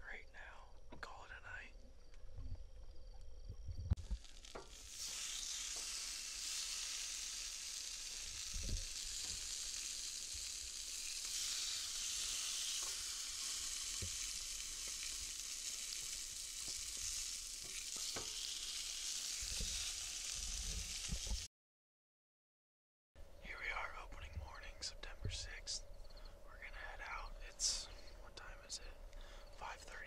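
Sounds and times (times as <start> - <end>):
meat sizzling on a griddle: 4.0 - 21.5.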